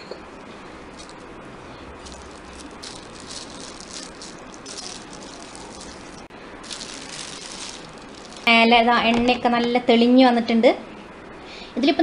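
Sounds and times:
cloth and plastic rustling: 0.9s - 1.3s, 2.0s - 9.6s.

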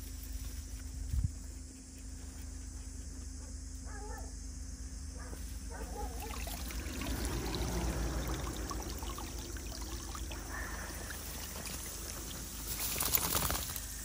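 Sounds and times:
rustle: 0.0s - 3.1s, 10.4s - 14.0s
water trickling and splashing: 6.0s - 14.0s.

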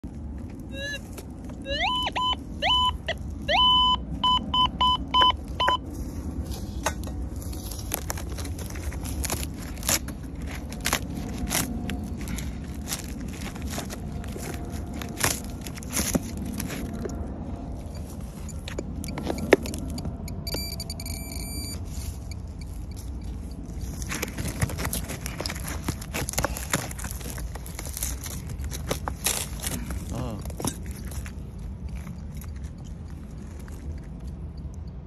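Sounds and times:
dead wood cracking and splintering: 7.5s - 17.3s, 23.8s - 34.5s.

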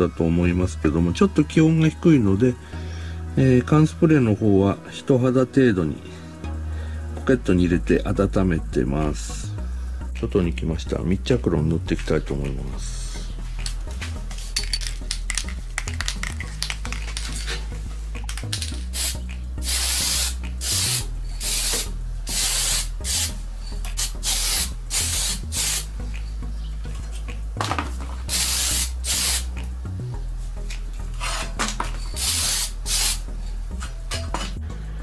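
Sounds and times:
aerosol spray can hissing: 18.6s - 25.9s, 28.3s - 29.5s, 32.1s - 33.2s.

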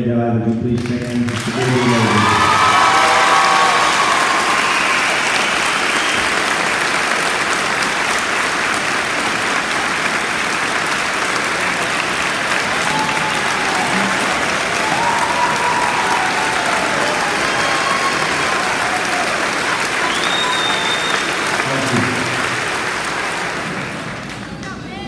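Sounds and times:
audience applauding: 0.7s - 24.8s.

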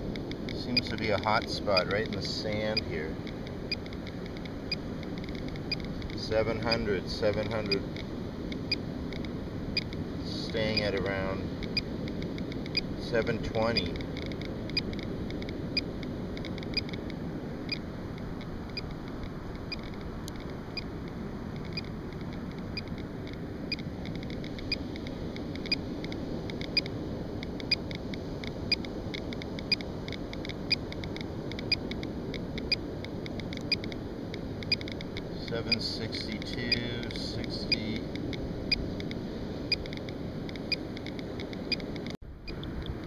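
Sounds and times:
background hiss: 27.4s - 41.8s
geiger counter clicking rapidly: 28.7s - 31.8s.

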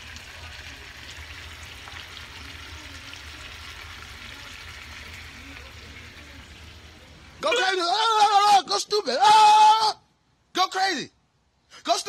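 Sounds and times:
meat sizzling in pan: 0.0s - 7.2s.

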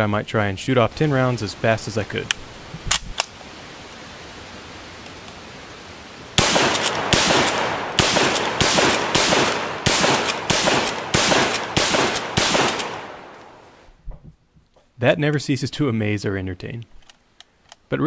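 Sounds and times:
rifle shots: 6.4s - 13.6s.

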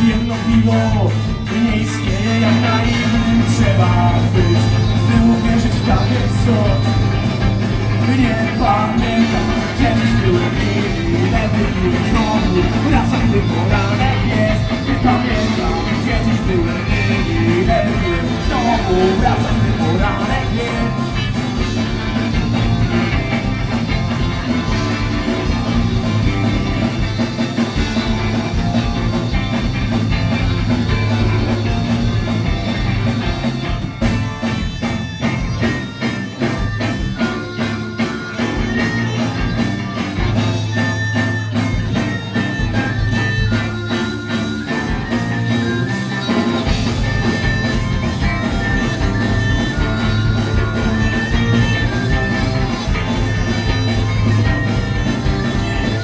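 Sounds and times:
person singing: 0.0s - 21.7s
bass guitar: 0.0s - 56.0s
drums: 0.0s - 56.0s
electric guitars: 0.0s - 56.0s.

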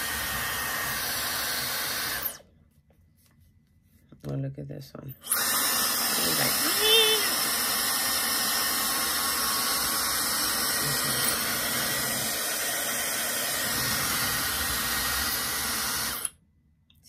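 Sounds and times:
hair dryer blowing air: 0.0s - 2.4s, 5.2s - 16.3s.

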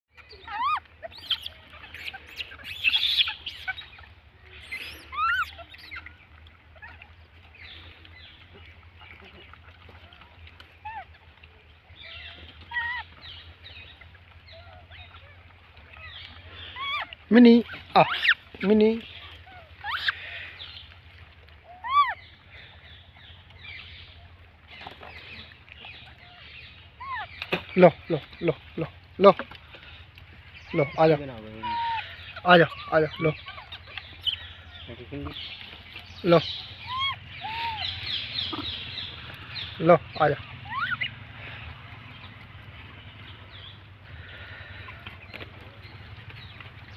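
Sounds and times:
high-pitched animal calls: 0.1s - 7.2s, 12.0s - 20.6s, 21.6s - 22.3s, 26.0s - 27.5s, 30.6s - 35.4s, 36.0s - 41.6s
animal chirps: 0.2s - 6.1s, 36.1s - 39.8s, 40.6s - 41.2s.

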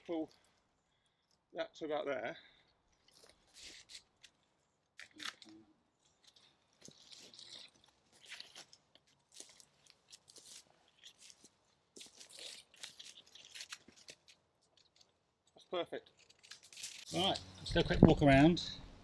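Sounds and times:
tarp rustling and crackling: 6.2s - 15.0s.

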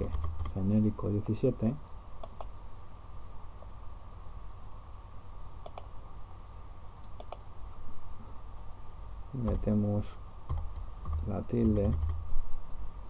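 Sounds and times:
low steady hum: 0.0s - 13.0s
computer mouse clicks: 2.2s - 2.6s, 5.6s - 5.9s, 7.0s - 7.5s, 10.5s - 12.2s.

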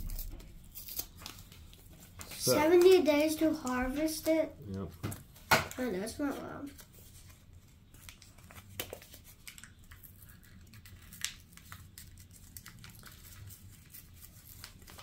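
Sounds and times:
paper packet crinkling: 5.2s - 15.0s.

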